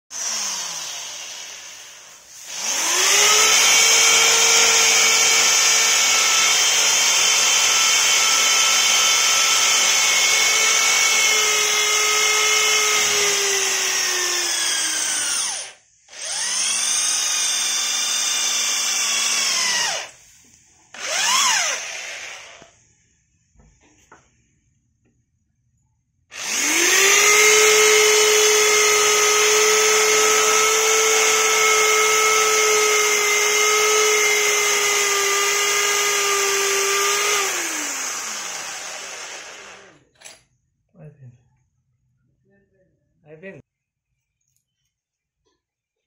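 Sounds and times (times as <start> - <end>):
impact drill drilling into concrete: 0.1 - 20.2, 20.9 - 22.7, 26.3 - 40.1.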